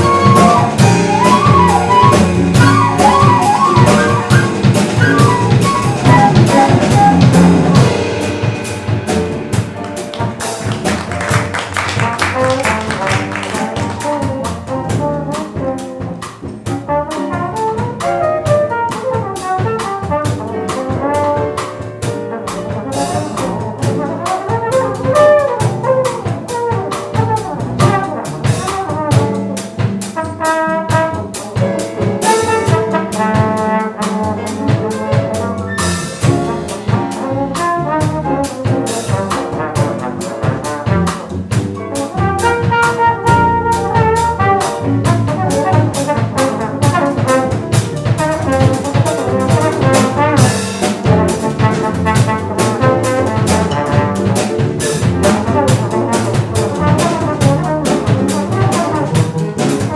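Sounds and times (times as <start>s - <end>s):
trombone solo: 0.0s - 8.2s, 12.0s - 59.9s
cymbals keeping a beat: 0.0s - 59.9s
piano: 0.0s - 59.9s
upright bass: 0.0s - 59.9s.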